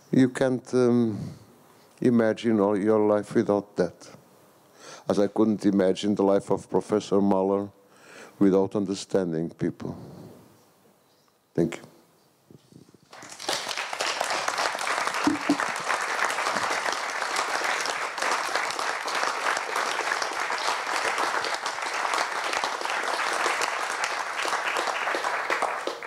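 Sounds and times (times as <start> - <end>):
audience applauding: 13.1 - 26.0.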